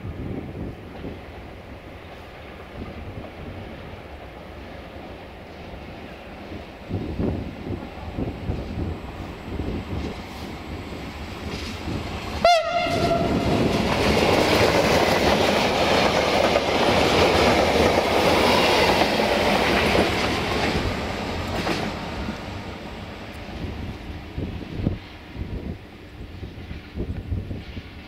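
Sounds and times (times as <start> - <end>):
train wheel rumble and clatter: 0.0 - 28.0
train horn blast: 12.4 - 13.6.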